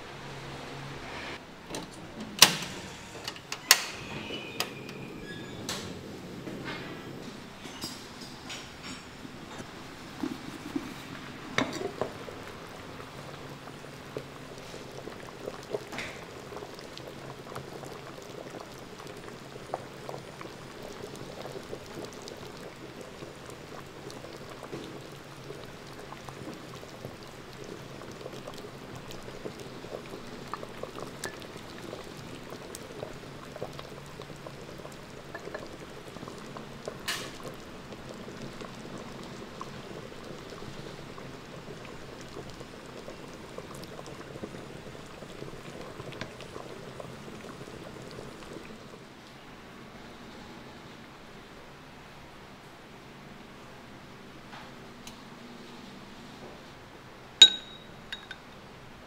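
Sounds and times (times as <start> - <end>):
soup bubbling at a rolling boil: 3.6 - 59.0
ladle clinking on pot: 57.4 - 58.4.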